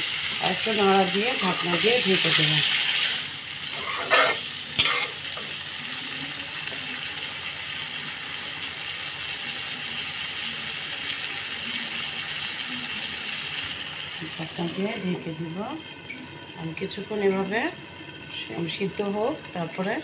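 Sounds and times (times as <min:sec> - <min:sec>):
potatoes sizzling in pan: 0:00.0 - 0:20.0
spatula scraping pan: 0:01.3 - 0:05.4.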